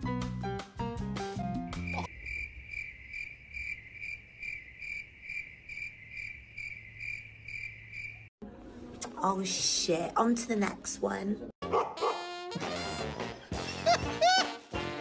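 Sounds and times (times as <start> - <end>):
crickets chirping: 1.8 - 8.3.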